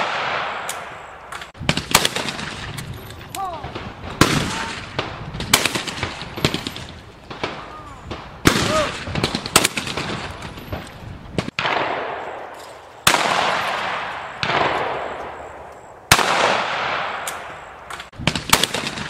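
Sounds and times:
shotgun shots echoing: 0.0 - 2.9, 3.5 - 19.0.

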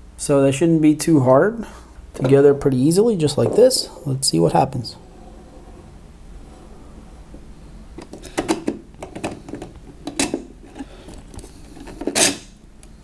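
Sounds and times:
plastic parts clicking and knocking: 8.0 - 12.5.

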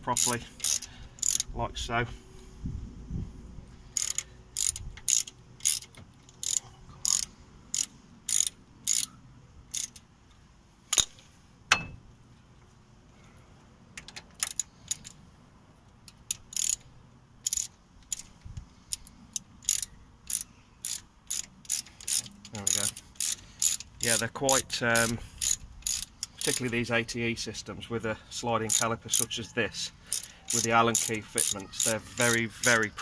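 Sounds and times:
ratchet clicking: 0.1 - 1.5, 3.9 - 9.1, 9.7 - 10.1, 14.0 - 15.2, 16.0 - 26.7, 28.7 - 29.3, 30.1 - 32.8.

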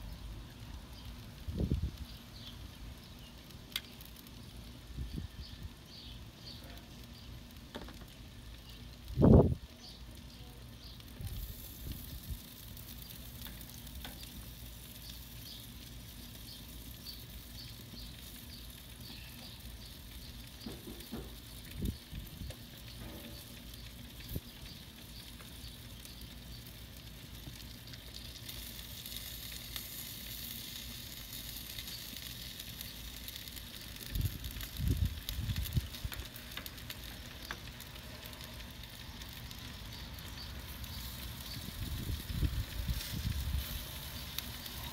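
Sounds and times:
meat sizzling on grill: 0.0 - 44.9.

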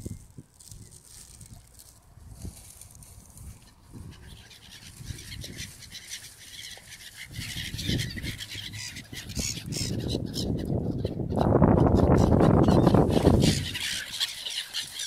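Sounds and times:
wind rumbling on microphone: 0.0 - 6.1, 7.2 - 14.2
gulls calling: 3.6 - 15.0.

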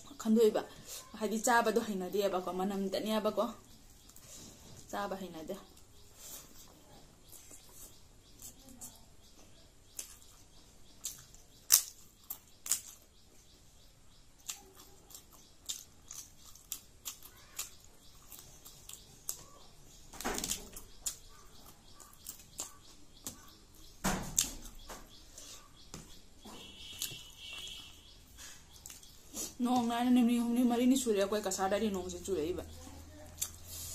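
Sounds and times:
crunching crisp food: 9.9 - 13.2, 14.4 - 25.6, 26.6 - 29.6
chewing clicks: 11.0 - 13.1, 14.4 - 19.6, 20.4 - 24.8, 33.3 - 33.6.

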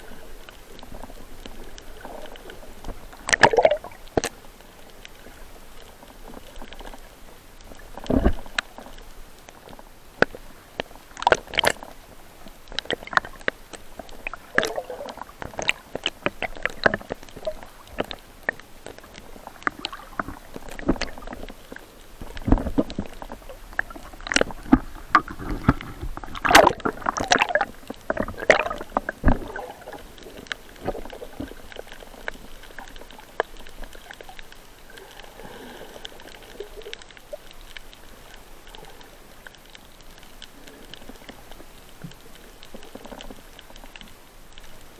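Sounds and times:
water sloshing and gurgling: 0.0 - 44.9
sharp splashes and knocks: 3.2 - 4.3, 23.8 - 29.9.

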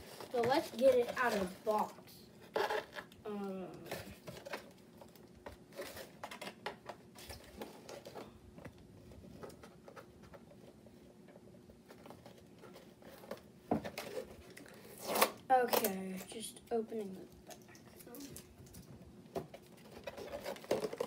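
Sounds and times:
packaging rustling: 19.5 - 21.0.

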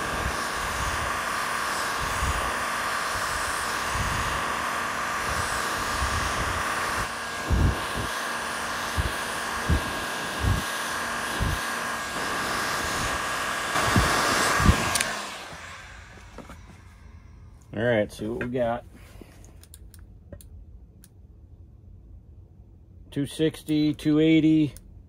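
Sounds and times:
heat gun blowing: 0.0 - 17.7.

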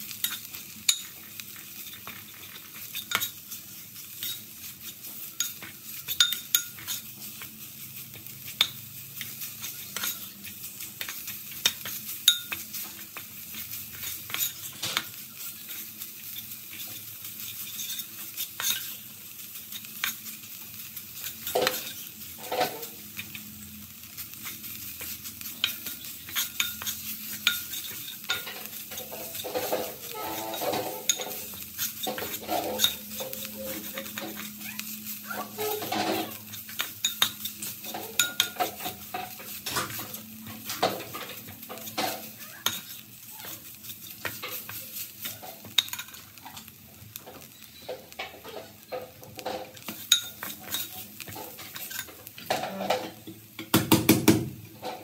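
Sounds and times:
frying sizzle: 0.0 - 55.0
metal spoon scraping a pot: 11.0 - 19.0, 21.2 - 23.0, 24.4 - 53.3.

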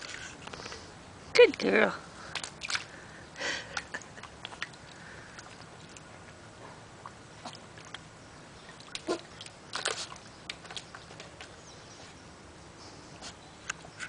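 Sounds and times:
dog splashing in water: 2.3 - 2.9, 7.4 - 11.6.

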